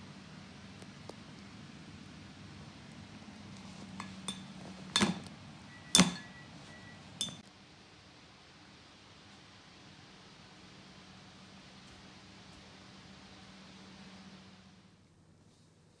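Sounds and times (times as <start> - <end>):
spoon clinking against dish: 4.0 - 5.3, 5.9 - 6.4, 7.2 - 7.4.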